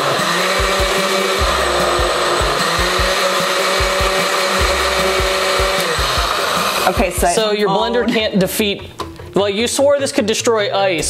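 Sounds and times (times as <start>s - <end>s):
blender motor whine: 0.0s - 7.3s.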